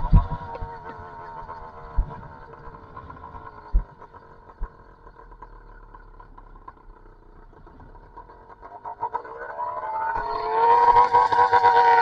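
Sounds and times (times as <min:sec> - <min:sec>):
sharp thumps: 0:00.0 - 0:01.0
small two-stroke engine running: 0:00.0 - 0:12.0.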